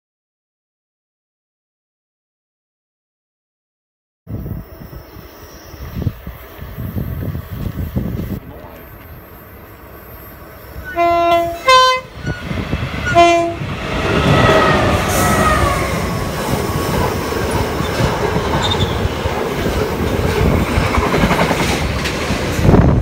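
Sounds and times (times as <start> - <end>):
train wagons running on rails: 4.4 - 23.0
locomotive engine passing: 4.5 - 23.0
locomotive horn blasts: 10.8 - 16.2.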